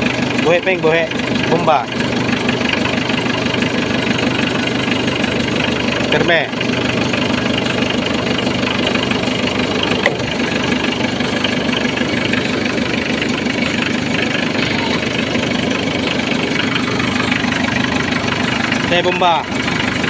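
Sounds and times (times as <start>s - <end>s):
car engine idling: 0.0s - 20.0s.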